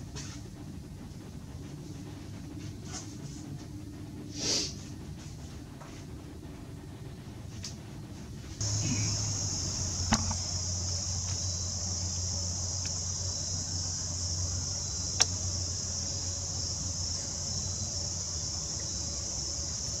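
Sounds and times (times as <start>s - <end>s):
low hum: 0.0s - 20.0s
high-pitched insect chorus: 8.6s - 20.0s
sharp clicks: 15.1s - 15.4s.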